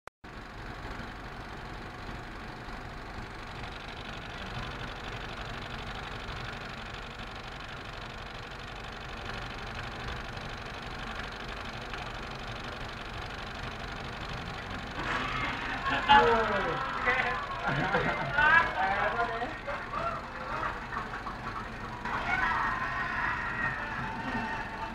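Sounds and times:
film projector running: 0.3 - 24.9.

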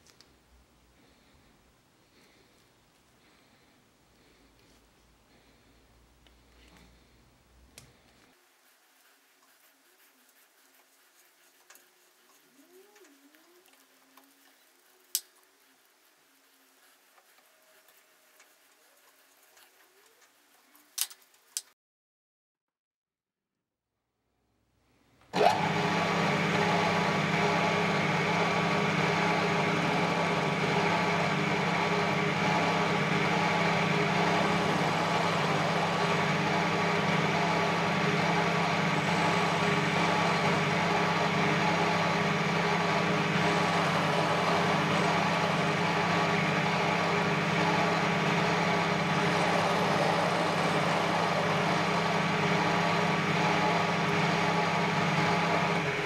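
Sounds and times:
metal lathe humming: 25.4 - 56.0.

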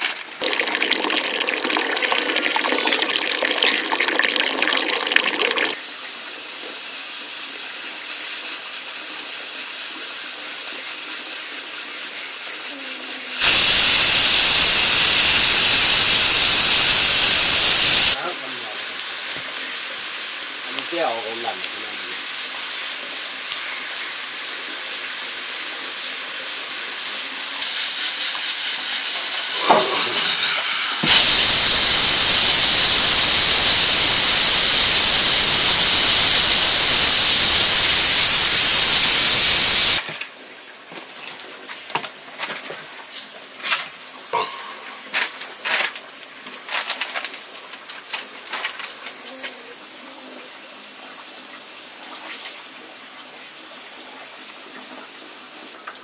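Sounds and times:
food sizzling in a pan: 5.7 - 40.0, 44.0 - 46.9
loud hiss of steam: 5.8 - 40.0.

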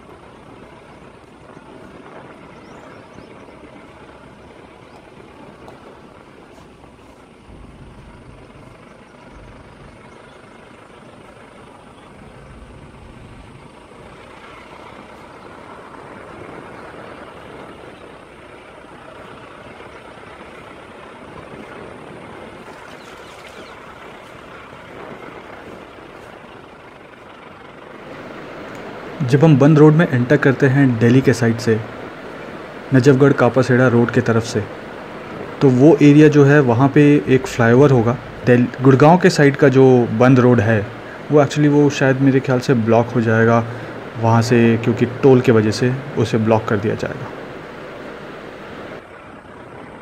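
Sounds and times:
deep low rumbles: 0.0 - 33.0
vehicle driving on rough road: 0.0 - 50.0.

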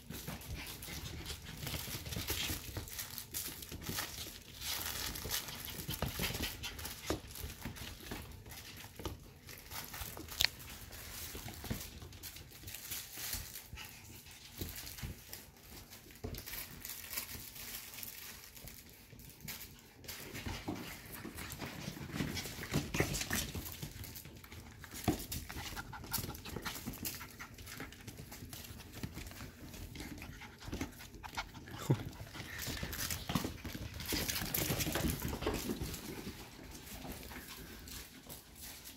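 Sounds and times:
clicks and scuffs on wooden floor: 19.1 - 38.9
puppy sounds: 19.9 - 38.9.

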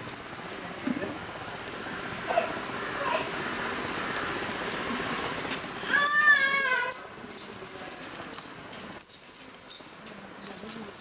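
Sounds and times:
metal chain clinking: 5.1 - 11.0.

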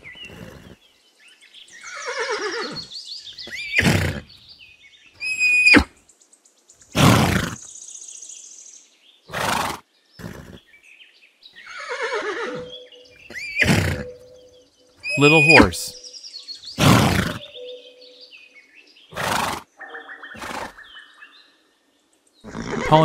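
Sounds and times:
horse whinnying: 1.8 - 4.3, 5.2 - 5.9, 6.9 - 7.6, 9.3 - 10.6, 11.6 - 14.2, 15.0 - 15.8, 16.8 - 17.5, 19.1 - 19.7, 20.3 - 20.8, 22.4 - 23.0.

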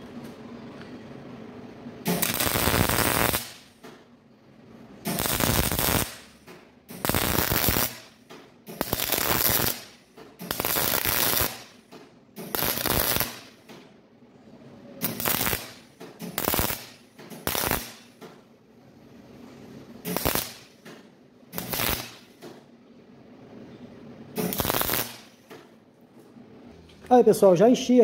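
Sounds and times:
welder arc crackling: 2.0 - 3.9, 5.0 - 13.8, 15.0 - 18.2, 20.0 - 22.5, 24.4 - 25.7.

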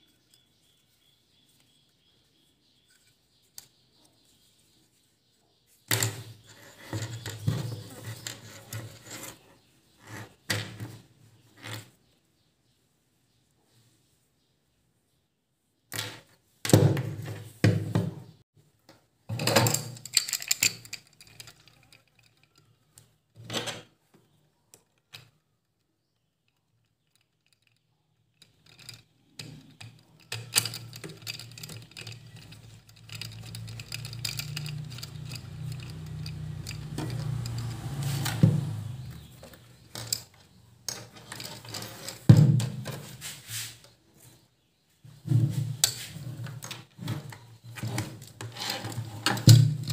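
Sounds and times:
rubbing and handling noise: 0.0 - 12.0, 26.0 - 49.9
plastic parts clicking and rattling: 5.9 - 9.4, 19.3 - 43.1, 45.8 - 49.9.

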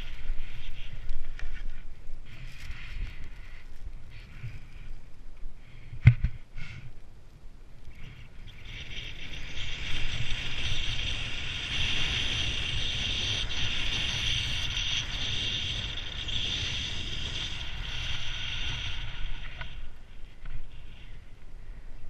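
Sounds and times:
skis hissing on snow: 8.0 - 19.9.

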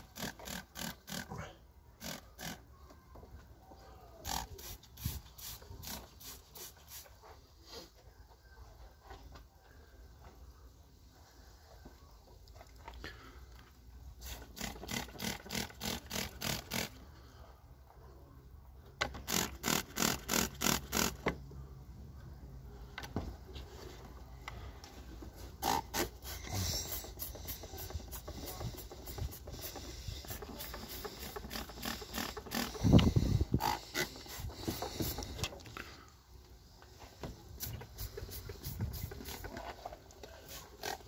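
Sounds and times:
spray bottle hissing squirts: 4.3 - 7.1, 25.6 - 35.4, 37.5 - 39.6.

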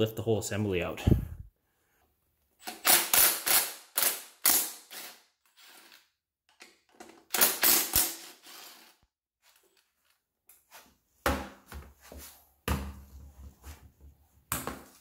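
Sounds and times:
cordless driver rattling bursts: 2.6 - 5.1.

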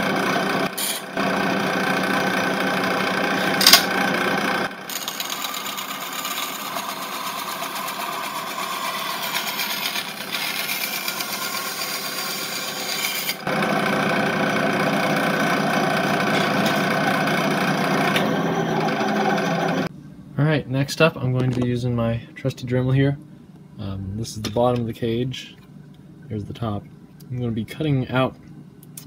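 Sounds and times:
electric bench saw cutting plastic: 0.0 - 19.9.

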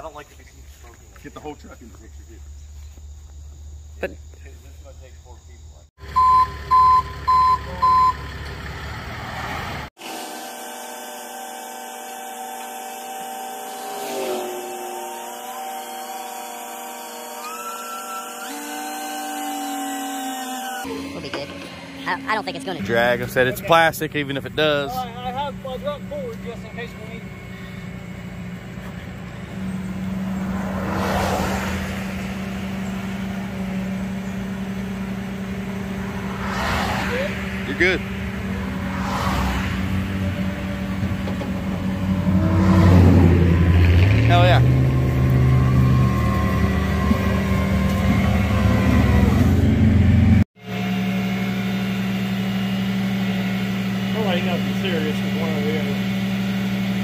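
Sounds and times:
cars passing: 5.0 - 9.9, 13.8 - 15.2, 20.9 - 50.4
reversing beeper: 6.0 - 8.3, 13.7 - 30.7, 39.9 - 53.3
winch whining: 10.0 - 57.0
truck engine idling: 20.9 - 57.0.

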